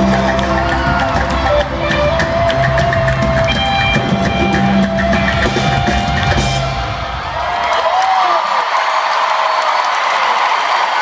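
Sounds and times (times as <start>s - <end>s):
rock drum solo: 0.0s - 7.6s.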